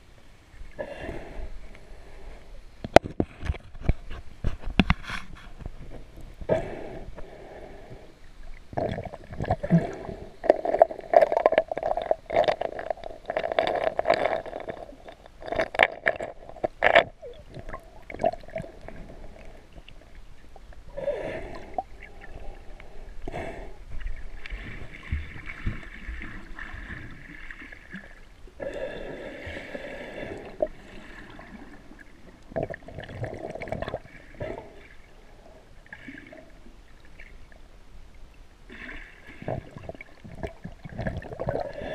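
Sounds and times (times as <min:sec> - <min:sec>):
underwater gurgling and sloshing: 0:00.0 - 0:41.9.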